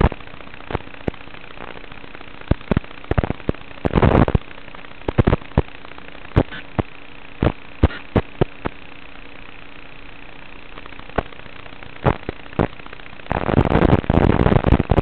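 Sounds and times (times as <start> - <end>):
sharp pops and crackles: 0.0 - 8.8, 10.6 - 15.0
static hiss: 0.0 - 15.0.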